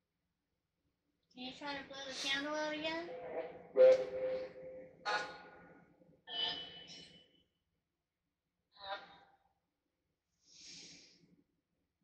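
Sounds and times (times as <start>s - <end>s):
breathy exhale: 10.4s - 11.2s.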